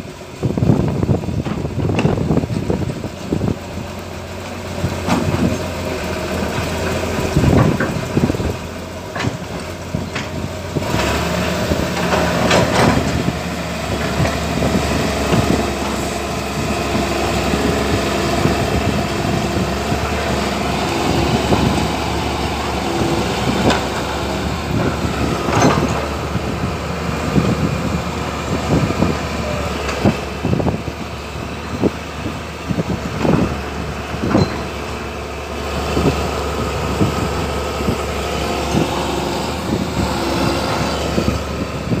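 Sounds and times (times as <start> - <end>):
excavator diesel engines running: 0.0 - 42.0
sharp metal clanks and knocks: 25.5 - 26.1, 34.2 - 34.8.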